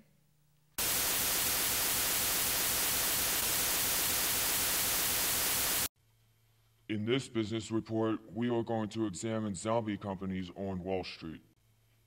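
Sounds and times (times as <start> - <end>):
loud static hiss: 0.8 - 5.9.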